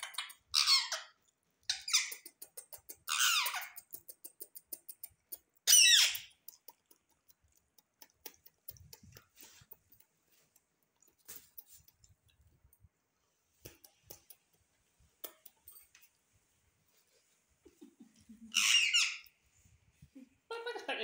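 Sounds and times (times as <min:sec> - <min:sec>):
parakeet squawking: 0:00.0 - 0:01.1, 0:01.7 - 0:02.3, 0:03.0 - 0:03.8, 0:05.6 - 0:06.3, 0:18.5 - 0:19.3.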